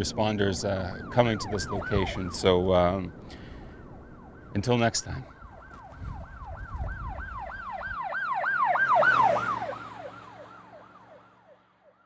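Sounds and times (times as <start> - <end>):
emergency siren yelping: 0.3 - 12.0.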